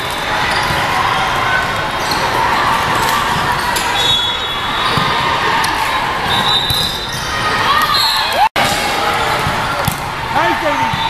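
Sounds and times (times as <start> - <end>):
murmur of voices: 0.0 - 11.0
volleyballs struck and bouncing: 8.6 - 11.0.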